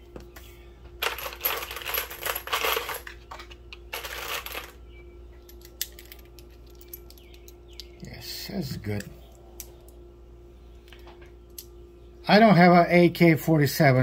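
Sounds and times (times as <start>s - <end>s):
cartridges rattling in plastic box: 1.0s - 4.8s.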